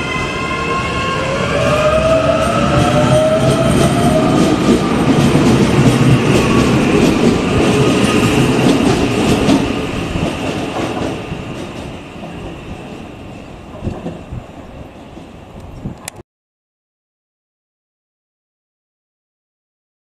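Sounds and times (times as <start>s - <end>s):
electric train pulling away: 0.0s - 15.6s
high train motor whine: 0.0s - 16.1s.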